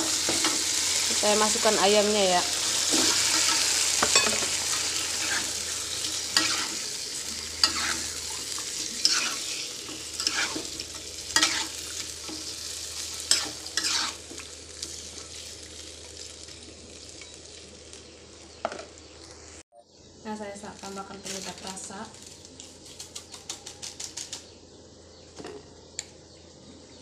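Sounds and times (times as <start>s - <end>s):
chicken sizzling in hot oil: 0.0s - 19.6s
spatula scraping and knocking pan: 7.6s - 14.9s.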